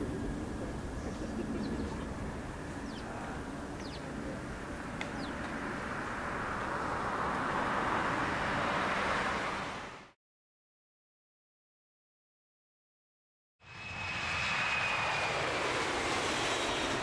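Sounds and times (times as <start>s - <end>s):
jet engines rumbling: 0.0s - 10.1s, 13.6s - 17.0s
bird chirps: 1.0s - 3.1s, 3.8s - 4.1s, 5.1s - 5.4s.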